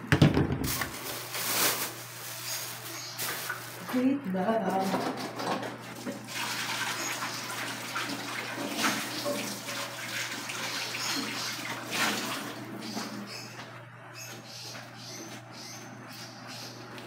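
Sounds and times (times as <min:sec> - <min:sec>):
water running from a tap: 0:06.0 - 0:13.0.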